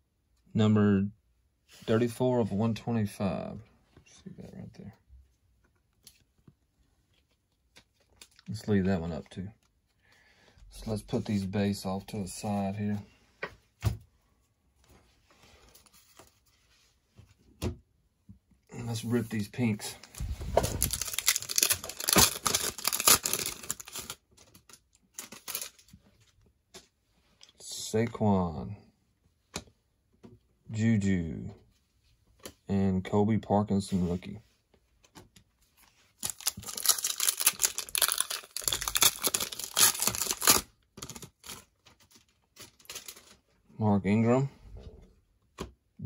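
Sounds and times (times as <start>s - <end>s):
plastic wrapper tearing and crinkling: 20.0s - 25.9s, 36.2s - 43.4s
sharp plastic rips: 20.2s - 25.8s, 36.2s - 41.7s.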